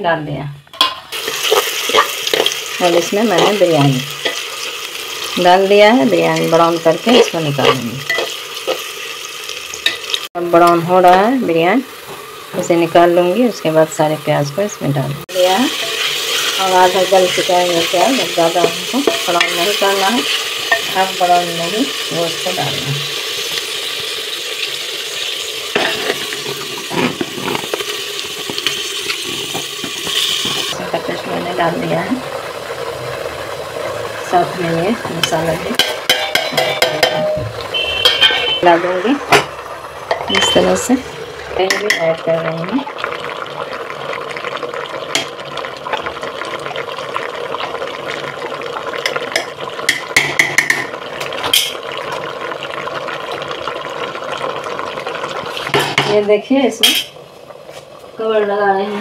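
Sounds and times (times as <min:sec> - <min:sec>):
onions sizzling in hot oil: 0:00.7 - 0:59.0
utensil scraping metal pot: 0:00.8 - 0:10.8, 0:15.4 - 0:31.3, 0:32.7 - 0:42.2
spatula knocking against pot: 0:35.2 - 0:38.5.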